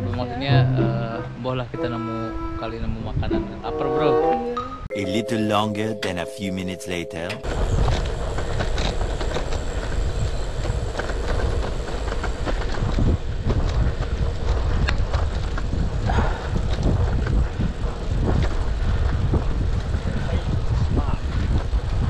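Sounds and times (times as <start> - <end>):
wind buffeting microphone: 7.4 - 22.0
bike tyres rumbling over gravel: 7.6 - 22.0.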